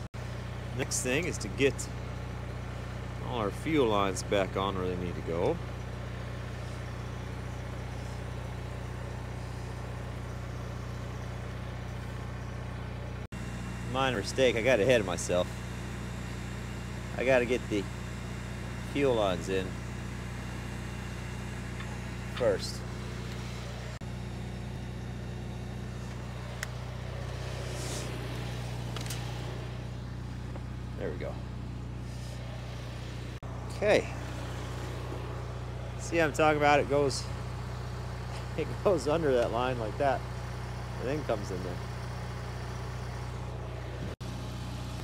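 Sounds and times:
machine humming with flutter: 0.0s - 45.0s.

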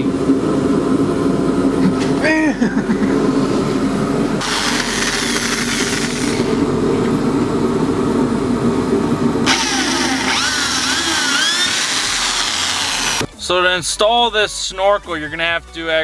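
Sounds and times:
hiss of drill bit cutting: 4.4s - 6.6s, 9.5s - 13.3s
electric drill whining: 4.4s - 6.7s, 9.4s - 13.3s.

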